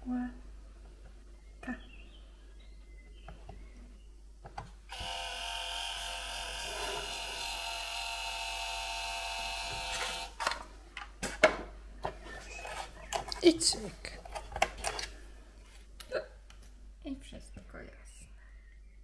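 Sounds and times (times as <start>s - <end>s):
label maker motor whine: 4.9s - 10.4s.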